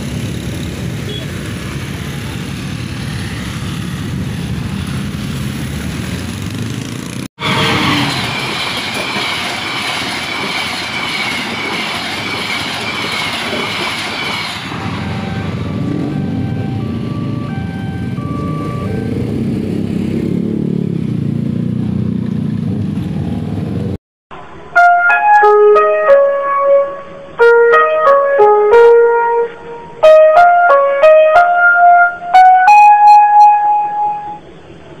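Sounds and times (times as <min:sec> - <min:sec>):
road traffic: 0:00.0 - 0:35.0
keyboard piano melody: 0:14.8 - 0:19.4, 0:24.6 - 0:34.5.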